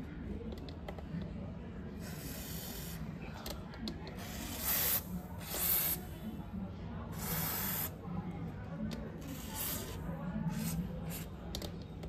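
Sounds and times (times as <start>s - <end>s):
aerosol can spraying: 4.2s - 6.0s, 7.2s - 7.9s.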